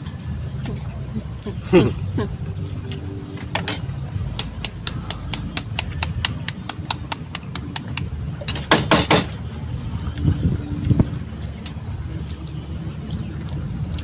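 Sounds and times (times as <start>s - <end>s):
eggshell cracking: 4.4s - 8.1s
spoon tapping eggshell: 4.4s - 8.1s.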